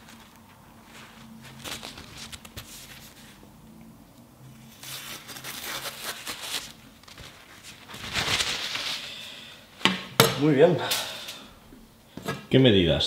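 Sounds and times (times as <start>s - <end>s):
paper towel rustling: 0.0s - 3.6s, 4.5s - 9.6s.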